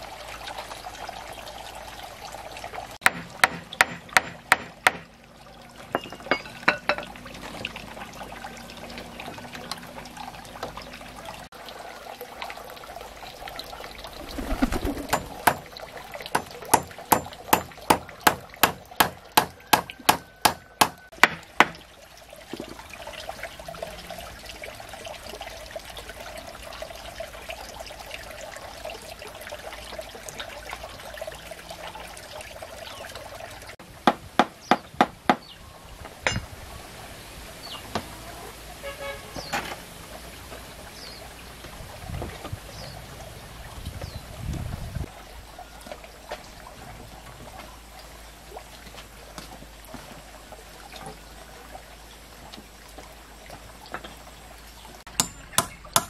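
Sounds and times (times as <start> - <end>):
water trickling: 0.0 - 33.9, 34.8 - 56.0
tool knocking on wood: 3.0 - 5.1, 15.1 - 15.6, 16.3 - 21.8.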